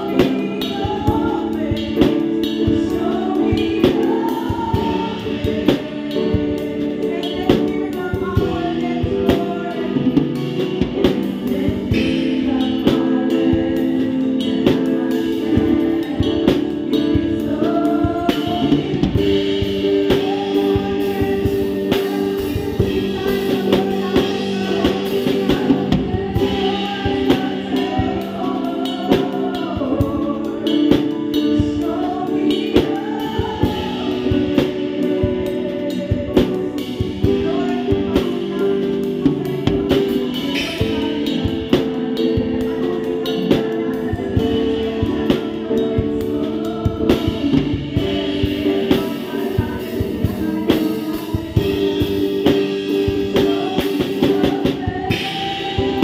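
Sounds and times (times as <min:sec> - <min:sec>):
drum hits and cymbals: 0:00.0 - 0:56.0
electric guitar: 0:00.0 - 0:56.0
keyboard chords: 0:00.0 - 0:56.0
lead singing: 0:00.0 - 0:56.0
voices singing along: 0:00.0 - 0:56.0.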